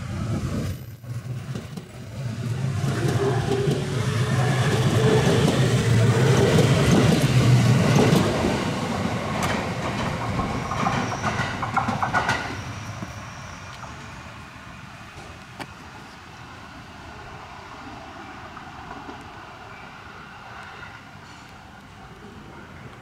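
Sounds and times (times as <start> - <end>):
electric train rumbling past: 0.0 - 23.0
wheels clacking over rail joints: 1.0 - 14.0.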